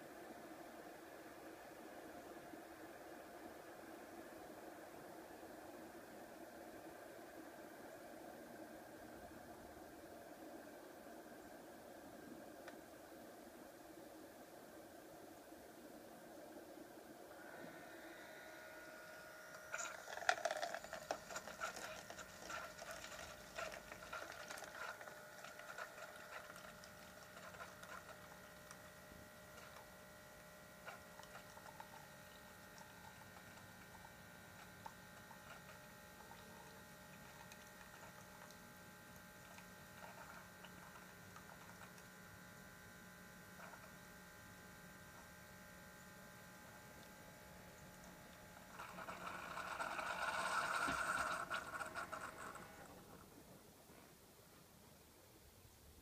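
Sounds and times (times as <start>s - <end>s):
coffee maker pump hum: 0.0s - 56.0s
spitting gurgling crackle: 19.5s - 45.2s, 46.6s - 53.6s.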